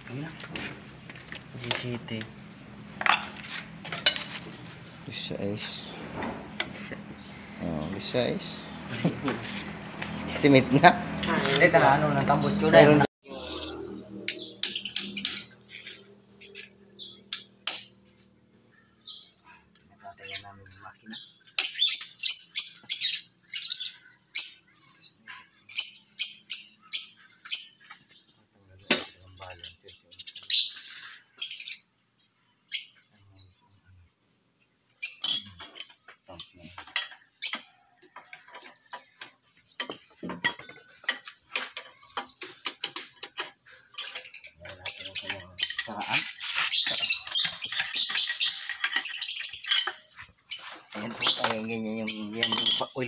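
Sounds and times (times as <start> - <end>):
high-pitched squeaking and chirping: 13.2 - 19.4, 20.0 - 28.1, 28.8 - 32.0, 35.0 - 38.0, 39.8 - 53.0.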